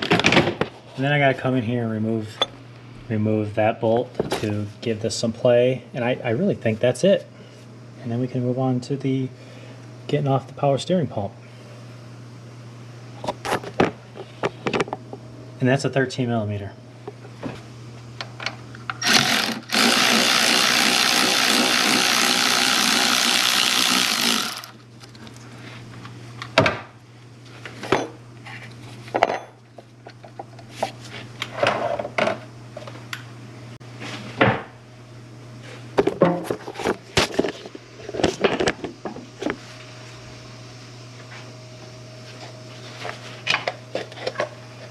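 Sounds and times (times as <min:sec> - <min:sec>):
power tool spinning a bolt: 0:19.0 - 0:24.8.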